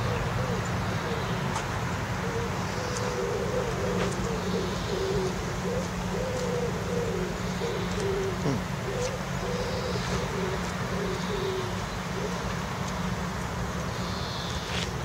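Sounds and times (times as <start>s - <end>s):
low background hum: 0.0s - 15.0s
pigeons cooing: 0.0s - 15.0s.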